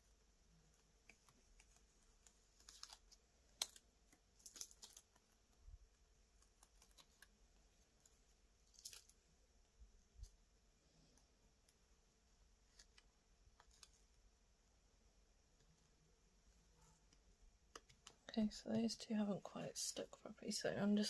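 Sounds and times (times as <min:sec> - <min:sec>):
plastic sheet crinkling and clicking: 0:00.7 - 0:07.4, 0:08.0 - 0:09.2, 0:12.7 - 0:14.1.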